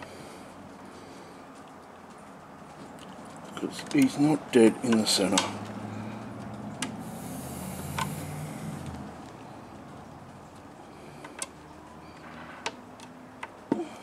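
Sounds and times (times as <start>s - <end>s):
passing motor vehicle engine hum: 0.0s - 14.0s
plastic parts clicking: 11.2s - 11.6s.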